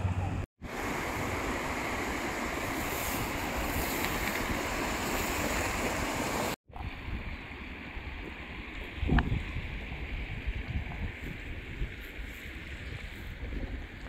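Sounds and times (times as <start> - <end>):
river rushing: 0.6 - 6.6.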